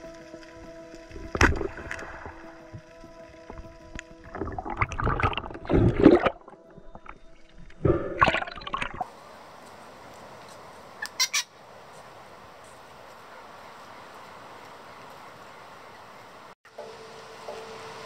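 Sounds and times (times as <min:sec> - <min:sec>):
underwater rushing bubbling water: 0:01.2 - 0:02.8, 0:03.4 - 0:09.1
outdoor hiss: 0:09.1 - 0:18.0
short sharp bird calls: 0:11.0 - 0:11.5.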